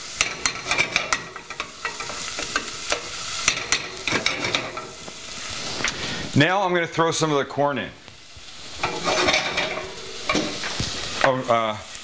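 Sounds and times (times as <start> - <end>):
vegetables sizzling in butter: 0.0 - 12.0
utensil scraping and knocking pan: 0.1 - 5.2, 8.8 - 11.0.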